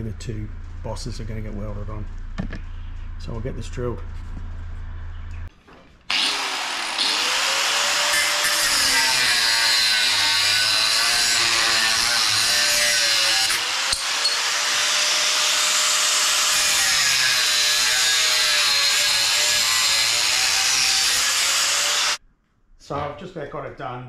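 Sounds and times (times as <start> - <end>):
angle grinder grinding metal: 6.1 - 22.2.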